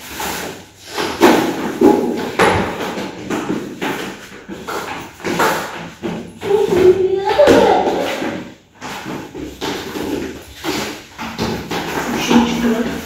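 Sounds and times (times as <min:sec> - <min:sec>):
child's hurried footsteps: 0:00.0 - 0:13.0
knocks and thumps: 0:00.0 - 0:13.0.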